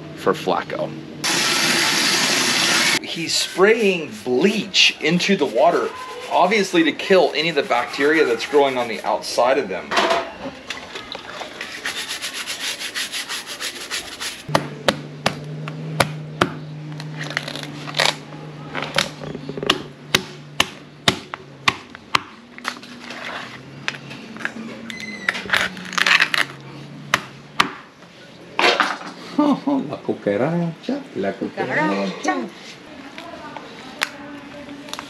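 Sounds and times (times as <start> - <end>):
stiff brush scrubbing shell: 1.2 - 9.6, 11.5 - 14.5.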